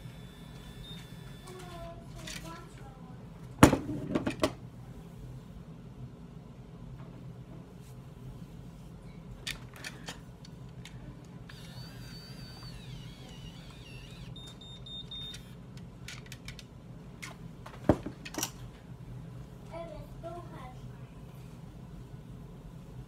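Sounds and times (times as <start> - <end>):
hair curler whine: 0.0 - 2.0, 11.2 - 15.6
electronic beeps: 11.6 - 15.5.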